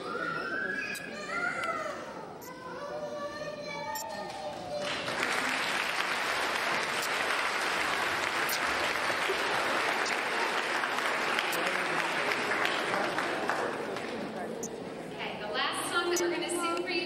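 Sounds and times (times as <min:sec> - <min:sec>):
audience applause: 0:04.5 - 0:14.4.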